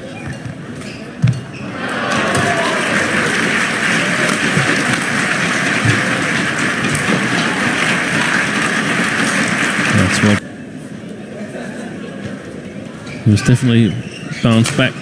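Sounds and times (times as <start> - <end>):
crowd cheering and applauding: 1.7 - 10.4.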